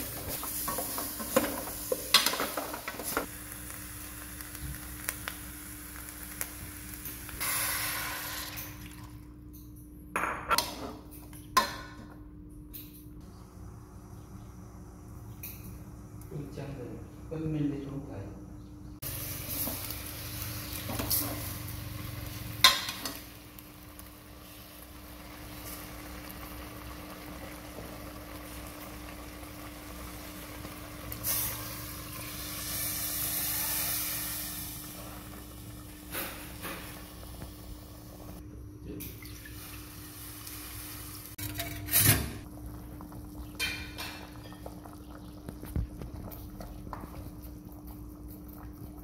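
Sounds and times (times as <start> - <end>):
water pouring into pot: 5.4 - 9.2
metal ladle scraping in pot: 41.4 - 42.4.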